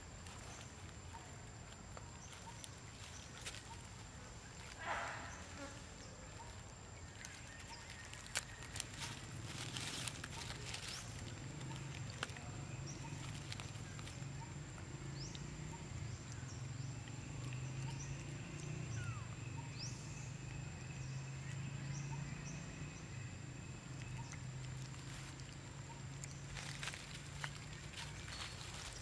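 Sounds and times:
rustle of dry leaves: 0.0s - 14.5s, 24.6s - 29.0s
faint bird chirps: 2.0s - 29.0s.

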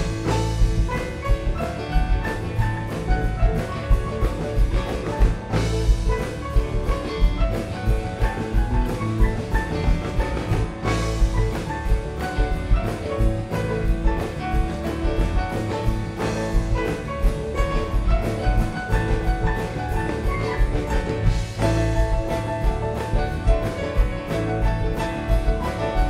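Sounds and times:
drum kit steady beat: 0.0s - 26.0s
electric guitars: 0.0s - 26.0s
keyboards: 0.0s - 26.0s.

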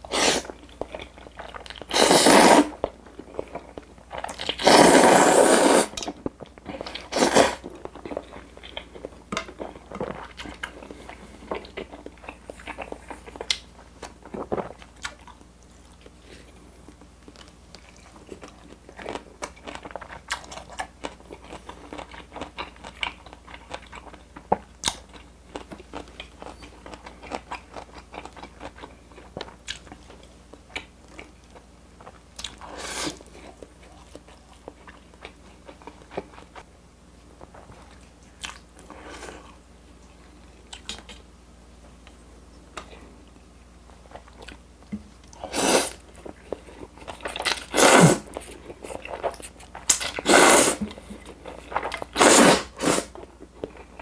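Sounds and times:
slurping spaghetti: 0.1s - 0.5s, 1.8s - 2.8s, 4.4s - 6.0s, 6.8s - 7.6s, 45.4s - 46.0s, 47.1s - 50.9s, 51.6s - 53.2s
chewing with wet mouth clicks: 7.7s - 16.2s, 16.9s - 32.6s, 37.4s - 38.9s, 40.0s - 41.3s, 44.1s - 45.4s.

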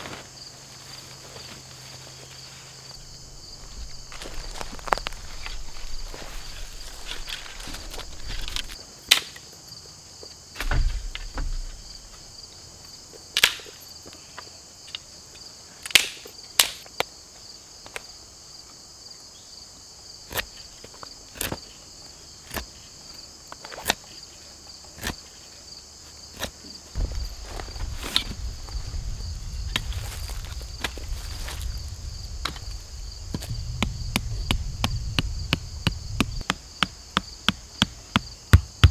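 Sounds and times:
high-pitched insect chorus: 0.0s - 38.9s
dull thumps: 10.6s - 12.3s, 27.0s - 31.8s, 32.4s - 38.9s.

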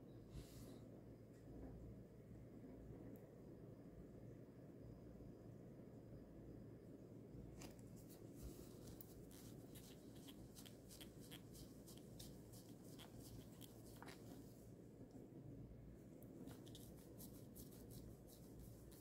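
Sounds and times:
cloth wiping watch case: 7.6s - 14.5s.

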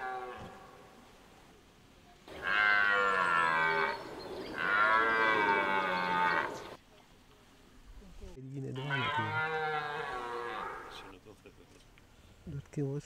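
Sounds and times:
red deer stag roaring: 2.3s - 6.8s, 8.8s - 11.1s.

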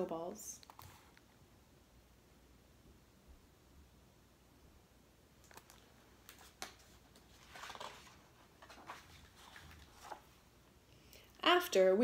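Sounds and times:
paper rustling: 5.4s - 10.5s.

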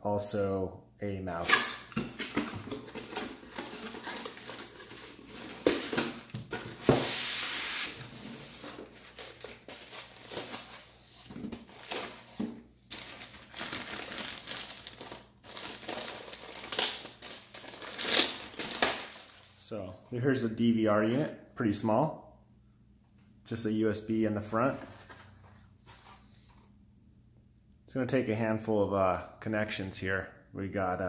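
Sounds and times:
plastic bag crinkling: 11.6s - 19.6s.

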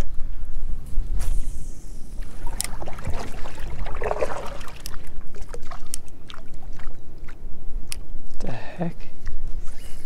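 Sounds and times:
water splashing off paddle: 2.2s - 5.9s.

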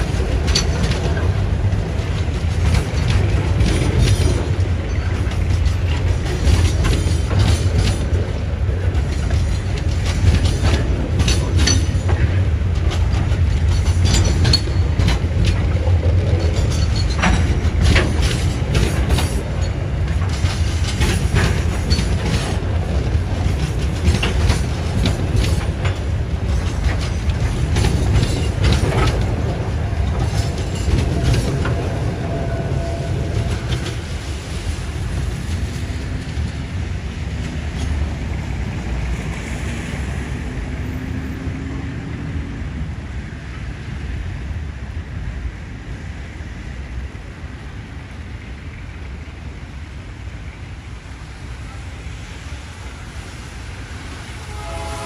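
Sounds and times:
wagons clanking and rattling: 0.0s - 32.4s
freight wheels rumbling on rails: 0.0s - 55.0s.

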